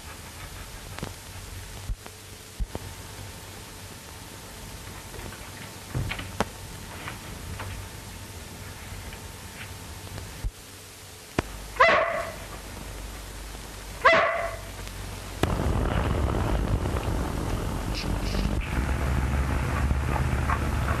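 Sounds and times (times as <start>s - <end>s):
steady background rumble: 0.0s - 21.0s
dog barking: 11.8s - 12.4s, 14.0s - 14.7s.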